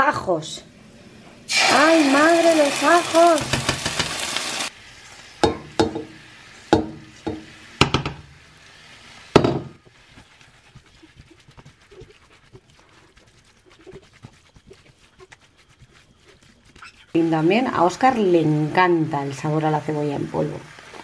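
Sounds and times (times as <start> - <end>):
faint crackling sizzle: 0.0 - 21.0
metal pot knocking frying pan: 3.4 - 4.2, 5.4 - 8.2, 9.4 - 9.8
spatula scraping vegetables: 8.5 - 19.6.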